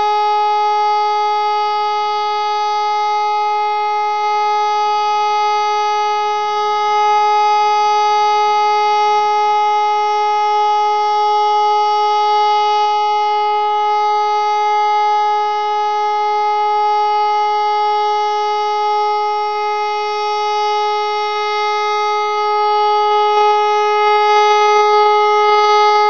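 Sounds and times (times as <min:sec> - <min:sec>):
siren steady tone: 0:00.0 - 0:26.0.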